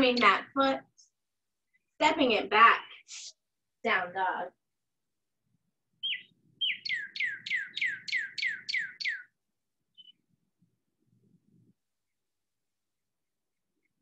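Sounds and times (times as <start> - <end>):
songbird singing: 5.9 - 10.3.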